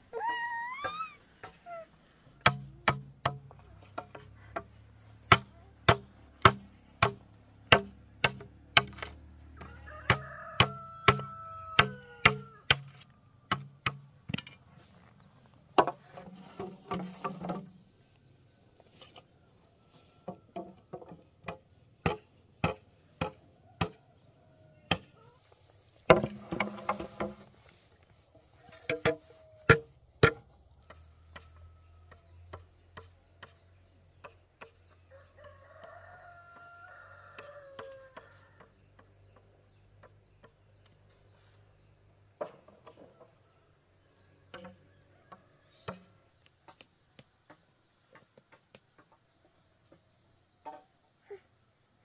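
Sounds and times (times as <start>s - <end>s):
bird calling: 0.0s - 2.2s
tool striking wood: 2.4s - 4.7s, 5.3s - 9.2s, 28.9s - 31.5s.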